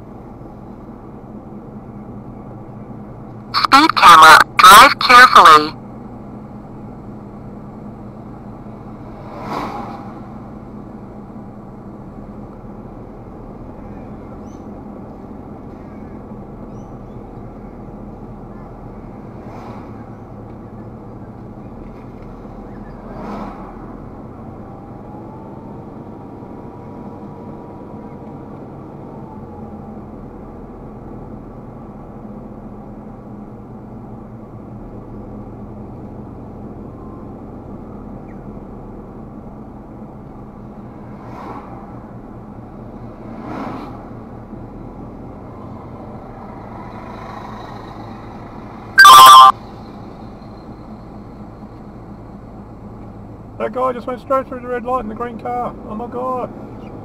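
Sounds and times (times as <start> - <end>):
car engine and road rumble: 0.0 - 57.0
loud tone: 3.6 - 5.8, 49.0 - 49.6.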